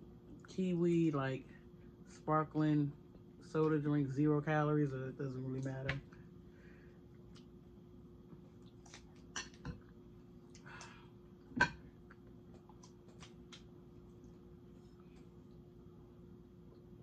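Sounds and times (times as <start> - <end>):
faint steady hum: 0.0 - 17.0
chewing with mouth clicks: 7.1 - 7.6, 8.4 - 11.0, 11.9 - 15.7.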